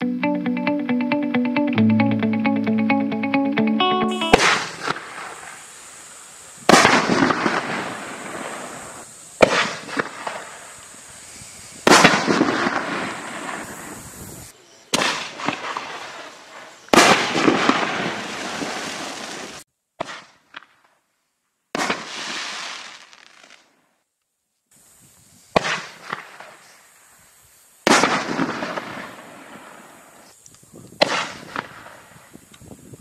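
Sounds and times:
sharp firework pops: 0:04.4 - 0:05.7, 0:06.6 - 0:10.8, 0:11.8 - 0:13.7, 0:14.9 - 0:16.1, 0:16.9 - 0:21.0, 0:21.7 - 0:23.7, 0:25.5 - 0:26.8, 0:27.8 - 0:29.6, 0:30.9 - 0:32.0
loud firework booms: 0:06.6 - 0:10.8, 0:11.8 - 0:14.1, 0:16.9 - 0:20.3, 0:27.9 - 0:29.6.

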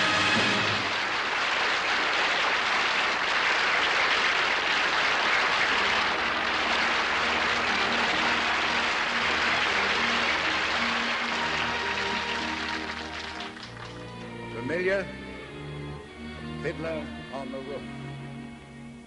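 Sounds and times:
audience applauding: 0:00.0 - 0:14.9
orchestra playing softly: 0:00.0 - 0:19.0.

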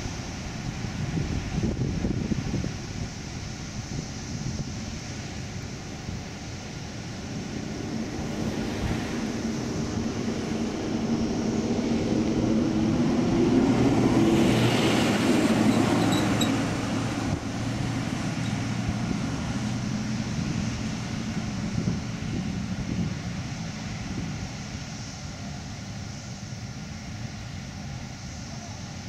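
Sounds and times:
water rushing from dam outlet: 0:00.0 - 0:29.0
car passing: 0:05.7 - 0:25.1.

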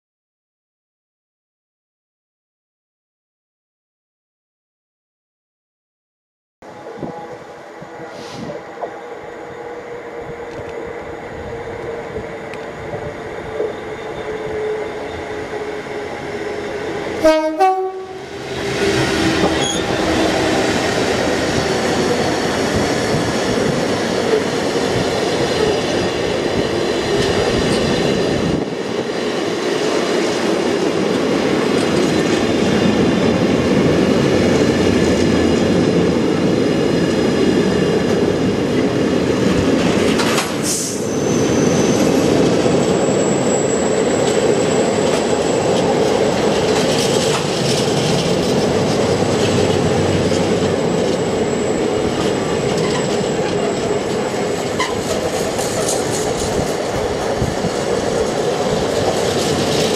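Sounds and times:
diesel locomotive engine: 0:06.6 - 0:59.9
train wheels rumbling on rails: 0:06.6 - 0:59.9
two-note train horn: 0:17.2 - 0:18.3.

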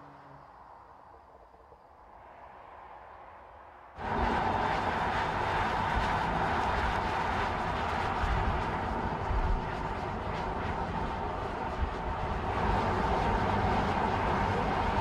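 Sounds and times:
car road and engine noise: 0:00.0 - 0:15.0.

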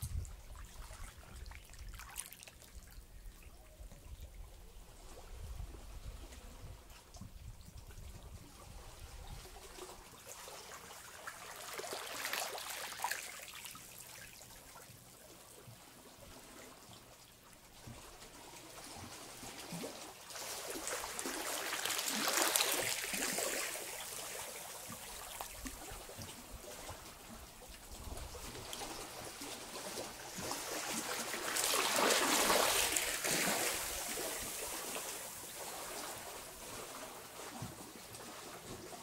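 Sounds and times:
waves washing over rocks: 0:20.4 - 0:24.5, 0:29.6 - 0:36.6.

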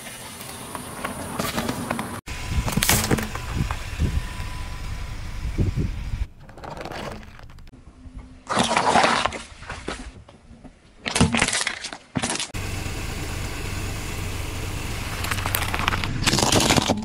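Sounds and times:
car engine running: 0:02.3 - 0:07.7, 0:12.6 - 0:16.5
tyre crushing plastic toy: 0:15.2 - 0:17.0.

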